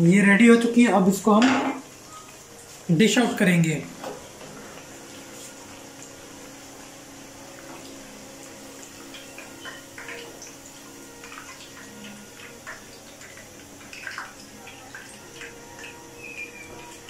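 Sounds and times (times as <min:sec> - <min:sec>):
hot oil bubbling and sizzling: 0:00.0 - 0:17.0
small crackles and pops: 0:07.5 - 0:17.0.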